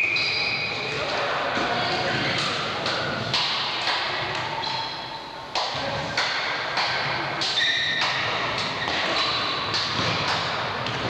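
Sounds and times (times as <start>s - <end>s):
sneaker squeaks on floor: 0.0s - 1.0s, 7.5s - 9.7s
basketball bouncing on hall floor: 5.6s - 11.0s.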